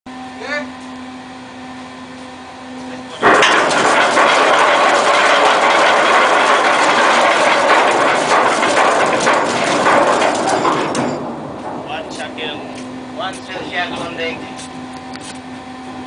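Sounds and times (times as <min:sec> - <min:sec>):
anchor chain clattering: 0:03.3 - 0:11.9.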